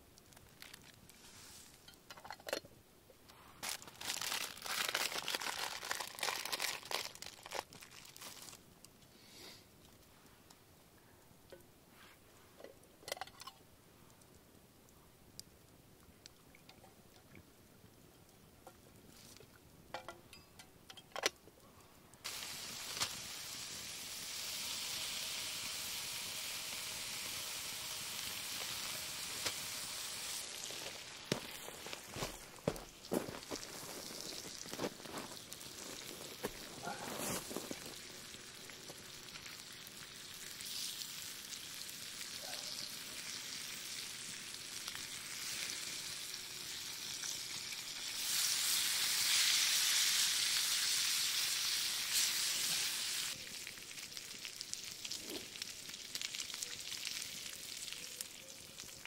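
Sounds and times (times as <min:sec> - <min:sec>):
foil package crinkling: 0:00.3 - 0:01.2, 0:03.6 - 0:08.6, 0:28.6 - 0:40.0
bacon sizzling in a frying pan: 0:22.3 - 0:36.9, 0:37.7 - 0:59.0.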